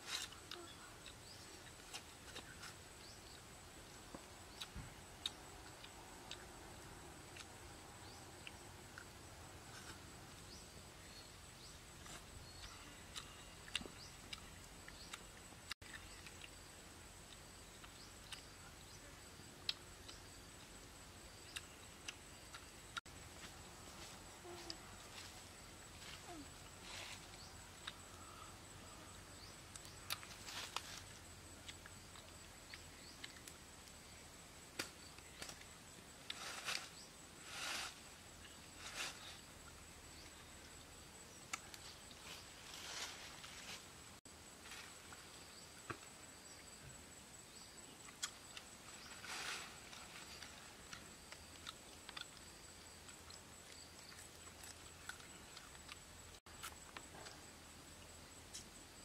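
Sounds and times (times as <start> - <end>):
soft rustle: 23.2 - 27.8, 30.2 - 31.9, 35.3 - 40.4, 41.6 - 45.8, 48.4 - 52.4.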